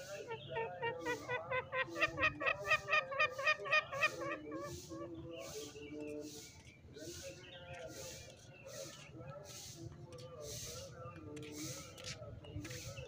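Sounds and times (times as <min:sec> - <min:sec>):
junglefowl clucking calls: 0:00.0 - 0:05.8.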